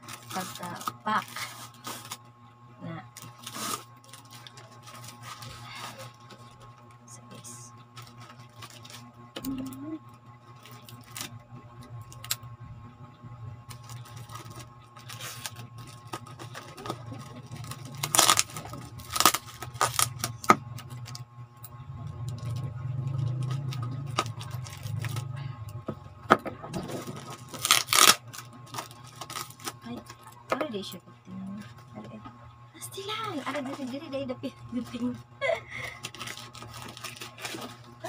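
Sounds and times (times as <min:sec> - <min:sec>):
plastic wrap and tape crinkling: 0:00.0 - 0:02.2, 0:03.1 - 0:06.7, 0:07.3 - 0:09.6, 0:10.6 - 0:11.4, 0:13.7 - 0:21.2, 0:22.2 - 0:25.4, 0:26.7 - 0:30.5, 0:32.9 - 0:38.0
steady low hum: 0:00.0 - 0:38.0.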